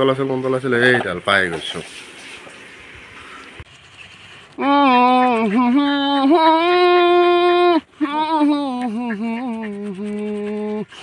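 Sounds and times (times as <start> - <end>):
person singing a slow tune: 4.6 - 10.9.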